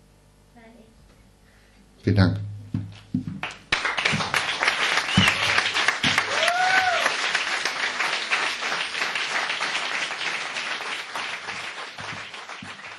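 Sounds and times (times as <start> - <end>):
audience applause: 3.4 - 12.9.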